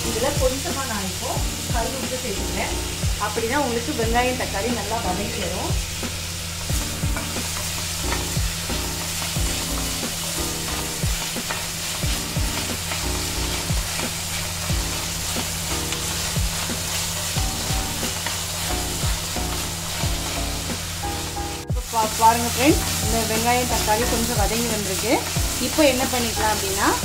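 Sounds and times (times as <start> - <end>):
onion and tomato sizzling in oil: 0.0 - 27.0
spatula scraping a pan: 7.1 - 20.7.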